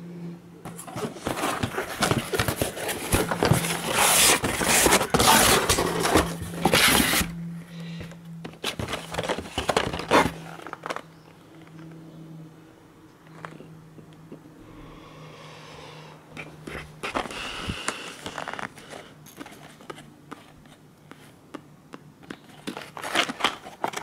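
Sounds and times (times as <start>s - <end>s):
cardboard rustling and crackling: 0.6s - 7.4s, 8.0s - 11.2s, 22.2s - 24.0s.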